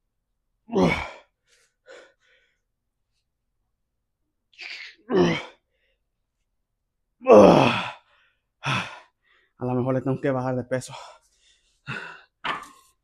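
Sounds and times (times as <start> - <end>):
man grunting: 0.7 - 1.2, 5.1 - 5.5, 7.2 - 7.9.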